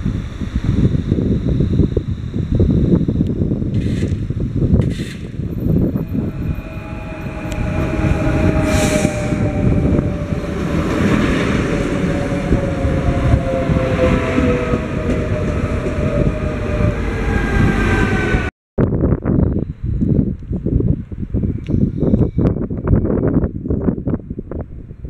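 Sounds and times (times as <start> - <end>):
train wheels rumbling on rails: 4.8 - 18.5
train whining tones: 4.8 - 18.5.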